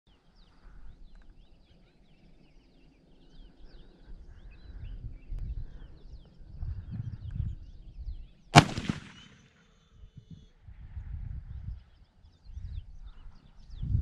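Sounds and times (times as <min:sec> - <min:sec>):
small birds chirping: 0:00.1 - 0:10.7, 0:11.5 - 0:14.0
low microphone rumble: 0:10.6 - 0:14.0.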